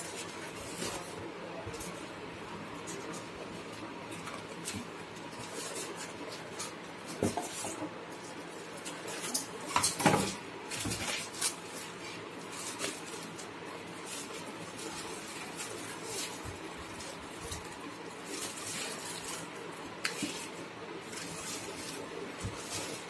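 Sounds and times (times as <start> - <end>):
foam and plastic wrap rustling: 0.0 - 23.0.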